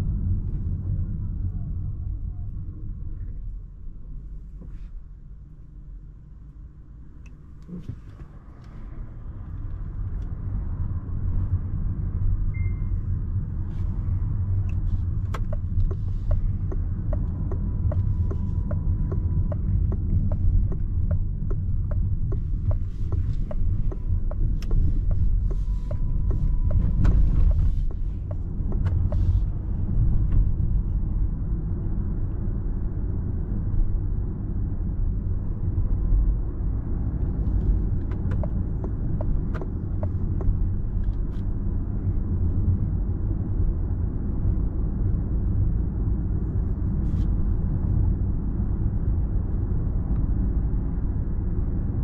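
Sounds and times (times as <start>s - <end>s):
road and tyre rumble in car: 0.0s - 52.0s
turn signal ticking: 14.6s - 29.6s, 37.0s - 41.4s.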